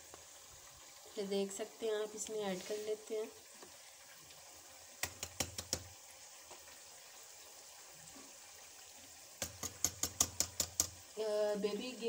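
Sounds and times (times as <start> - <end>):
utensil rapping against a dish: 9.4 - 11.0.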